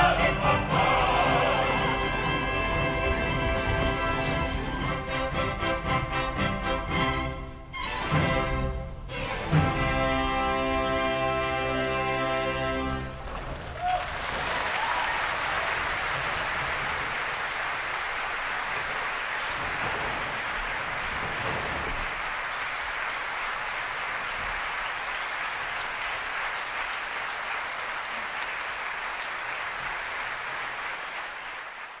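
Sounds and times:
audience applauding: 13.2s - 32.0s.

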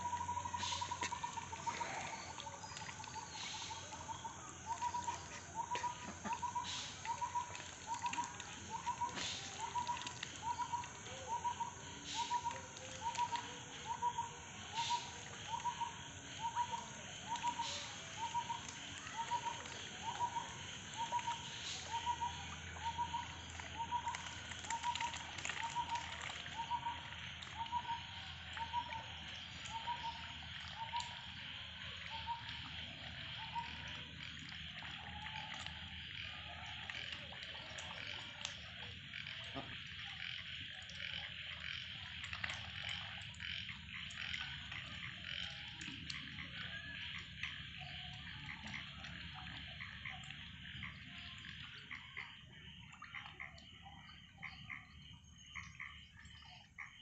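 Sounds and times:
splashy clicks: 22.9s - 31.1s.

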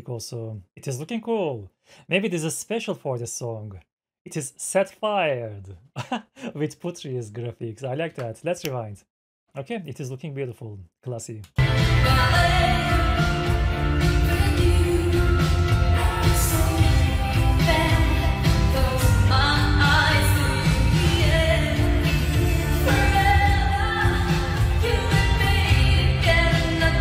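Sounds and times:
woman singing a pop song: 11.6s - 27.0s
backing band with heavy bass: 20.5s - 27.0s.

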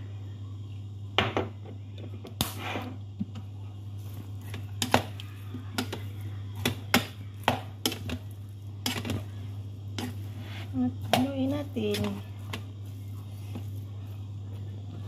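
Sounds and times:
steady low hum: 0.0s - 15.0s
rice paddle scraping a pot: 10.0s - 12.6s.

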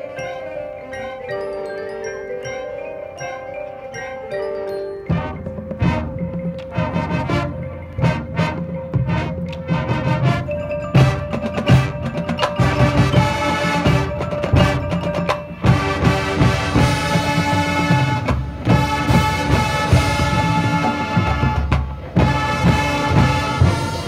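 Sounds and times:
mallet percussion: 0.0s - 24.0s
marching band playing: 0.0s - 24.0s
timpani: 5.1s - 24.0s.

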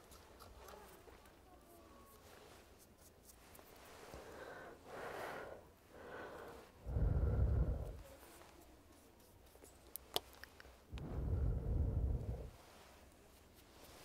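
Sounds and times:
soft breaths close to microphone: 0.0s - 14.0s
air blown onto microphone: 6.5s - 8.0s, 10.9s - 12.6s.

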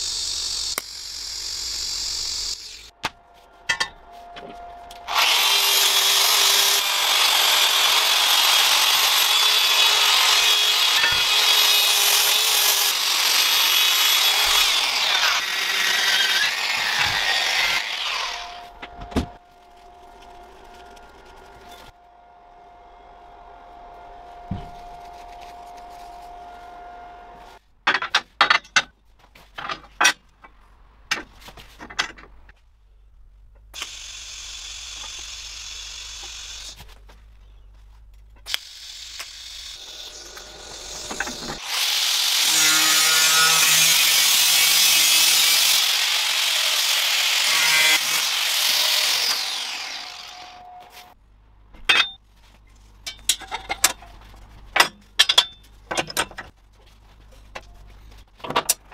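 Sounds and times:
power tool running on metal: 0.0s - 2.9s, 5.1s - 18.6s, 38.6s - 51.0s
welding arc: 0.0s - 2.9s
metal parts clicking and knocking: 53.0s - 56.6s.

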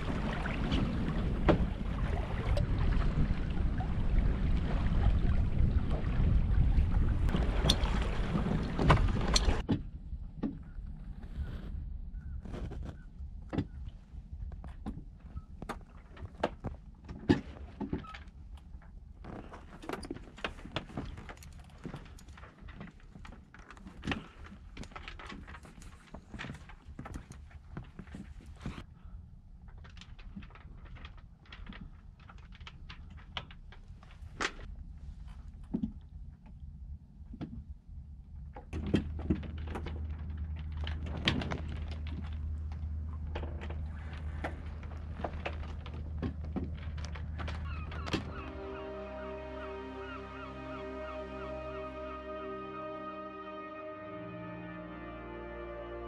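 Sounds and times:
low rumble: 0.0s - 15.2s
low steady rumble: 0.0s - 17.1s, 24.3s - 53.0s
sailboat rigging knocks and clicks: 12.4s - 28.8s, 38.4s - 48.6s.

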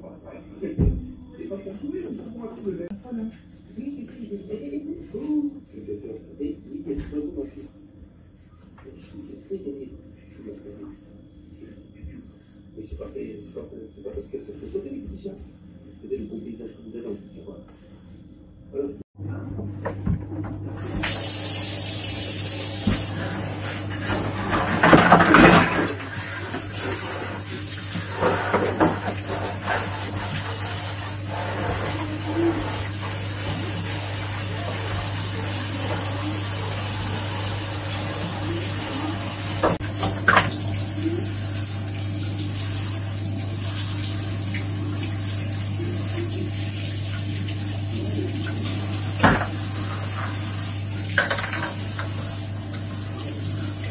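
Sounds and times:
water running: 20.4s - 53.9s.

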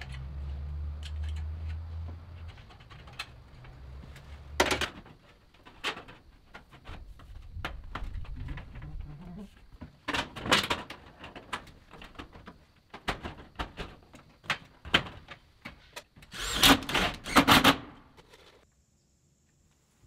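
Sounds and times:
hand tool clicks and knocks: 1.0s - 1.8s.

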